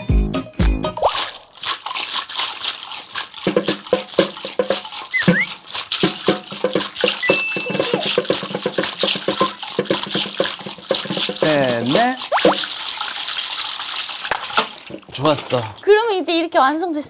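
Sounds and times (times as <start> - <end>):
bottle cap shakers rattling: 1.0 - 15.9
hand drum strokes: 2.2 - 13.3.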